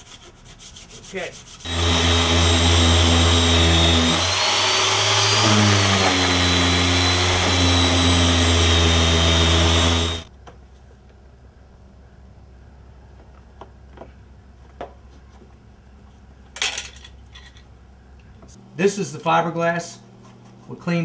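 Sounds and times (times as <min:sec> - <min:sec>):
power sander sanding filler: 0:00.6 - 0:10.3.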